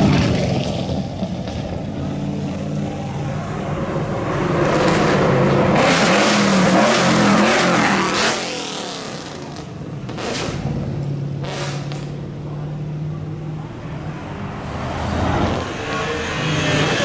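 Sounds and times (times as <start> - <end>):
car engine revving hard: 4.4 - 10.7.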